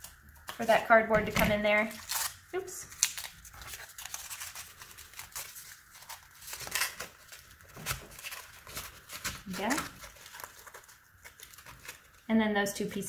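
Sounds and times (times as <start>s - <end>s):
cardboard scraping together: 3.1s - 12.2s.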